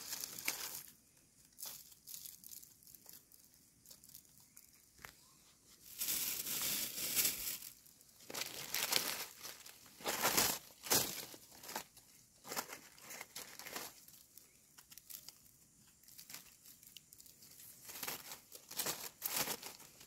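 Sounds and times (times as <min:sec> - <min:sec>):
dry leaves rustling: 0:00.0 - 0:04.8, 0:05.7 - 0:20.0
plastic bag crinkling: 0:00.0 - 0:05.1, 0:05.8 - 0:20.0.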